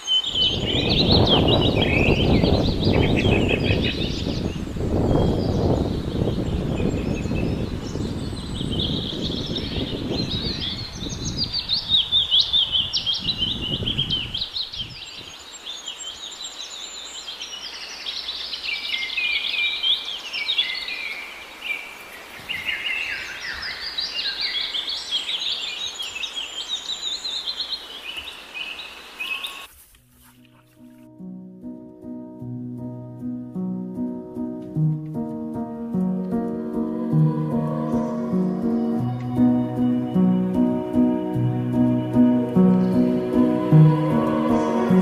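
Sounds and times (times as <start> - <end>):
songbirds chirping: 0.0 - 45.0
low rumbling noise: 34.8 - 45.0.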